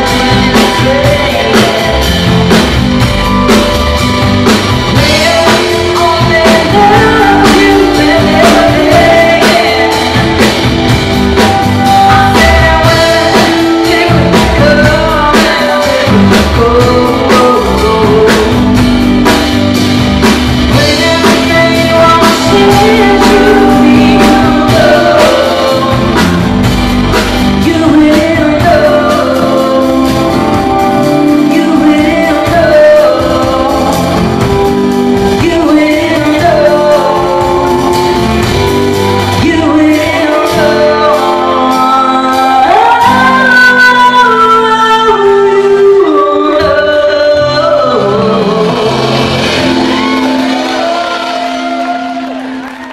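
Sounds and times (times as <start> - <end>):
live rock band playing: 0.0 - 52.9
woman singing lead: 0.0 - 52.9.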